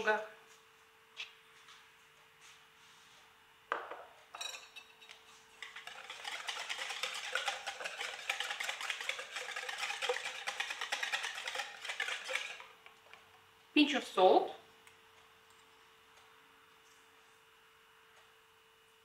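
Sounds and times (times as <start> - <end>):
whisk beating mixture in bowl: 5.6 - 12.9.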